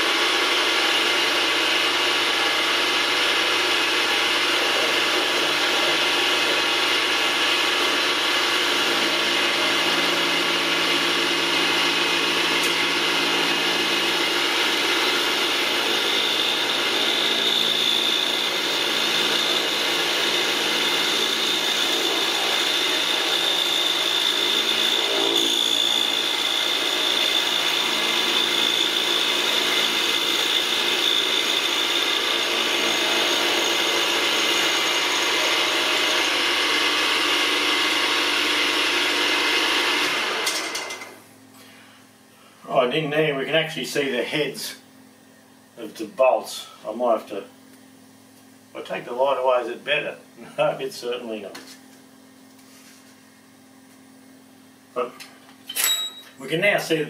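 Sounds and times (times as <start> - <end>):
milling machine whirr: 0.0 - 41.2.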